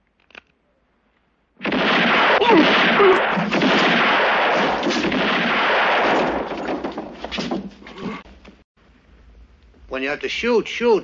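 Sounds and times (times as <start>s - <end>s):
rapid gunfire: 1.6s - 6.8s.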